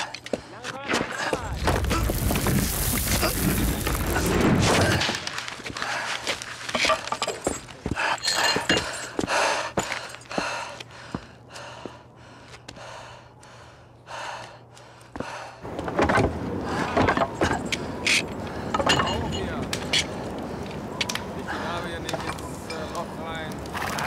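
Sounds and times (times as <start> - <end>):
bricks crunching and clattering: 0.8 - 8.9
heavy breathing: 7.8 - 15.7, 16.5 - 18.9.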